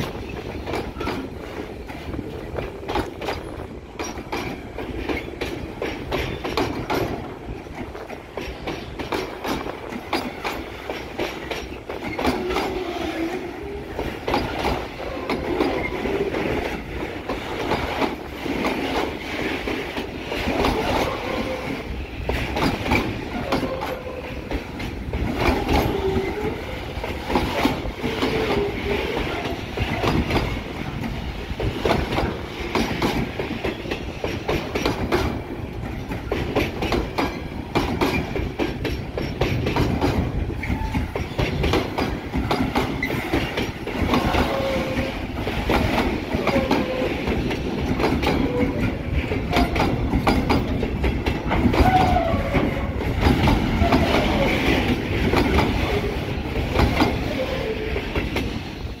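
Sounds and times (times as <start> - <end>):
train wheels clacking over rail joints: 0.0 - 59.0
wheel squeals: 42.9 - 43.6.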